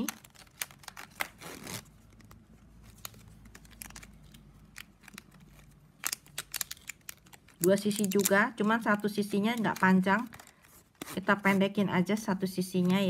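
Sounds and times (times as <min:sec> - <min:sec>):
plastic strapping band clicking: 0:00.0 - 0:08.7.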